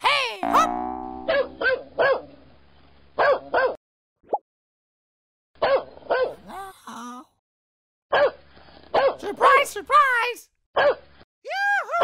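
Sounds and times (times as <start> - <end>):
dog barking: 1.3 - 2.3, 3.2 - 3.8, 5.6 - 6.4, 8.1 - 9.2, 10.8 - 11.0.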